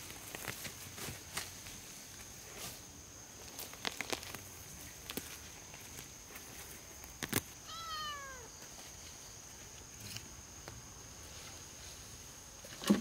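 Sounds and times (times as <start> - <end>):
animal cry falling in pitch: 7.6 - 8.5.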